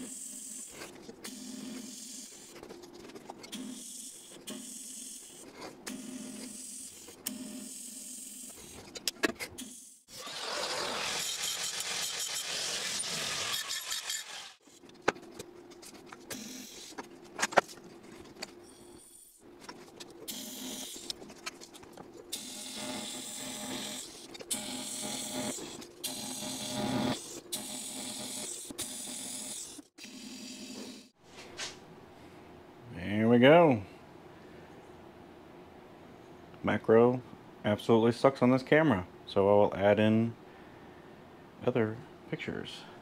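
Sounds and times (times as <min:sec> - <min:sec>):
power tool running: 0:10.1 - 0:14.6, 0:22.3 - 0:31.1.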